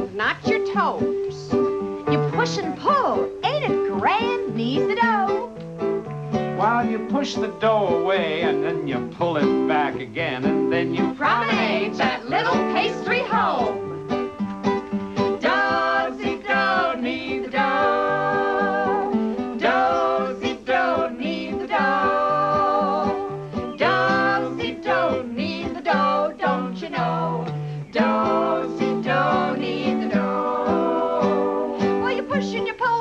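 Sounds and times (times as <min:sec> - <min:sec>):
strummed acoustic guitar: 0:00.0 - 0:33.0
voices singing together: 0:06.6 - 0:13.9, 0:15.1 - 0:33.0.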